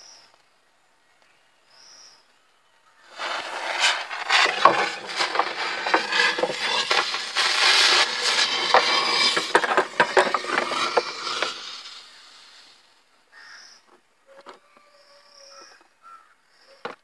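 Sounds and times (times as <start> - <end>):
firework hissing and crackling: 3.1 - 12.9.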